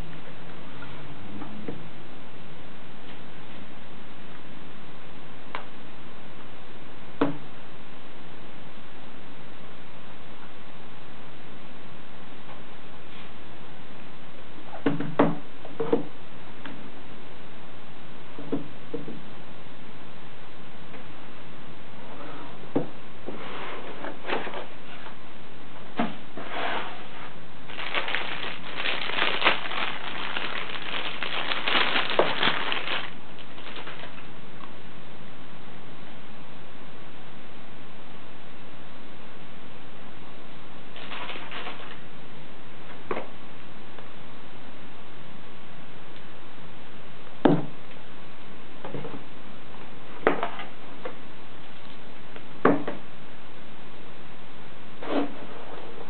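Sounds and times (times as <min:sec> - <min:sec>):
paper packaging rustling: 0:27.7 - 0:34.3, 0:41.0 - 0:42.0
plastic bag crinkling: 0:27.7 - 0:34.3, 0:41.0 - 0:42.0.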